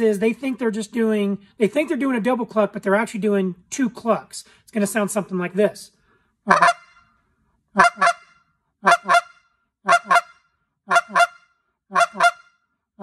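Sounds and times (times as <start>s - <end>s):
goose call clucks: 6.5s - 7.0s, 7.8s - 12.6s.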